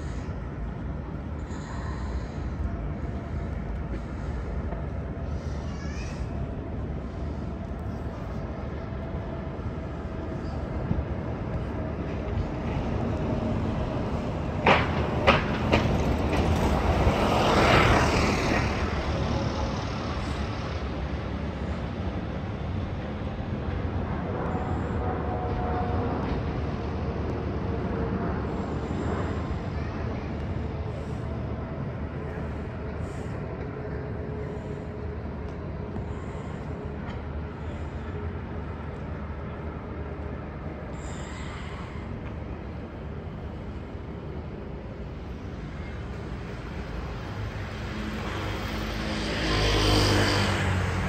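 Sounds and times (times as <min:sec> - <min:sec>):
urban background noise: 0:00.0 - 0:51.0
vehicle passing: 0:46.6 - 0:51.0.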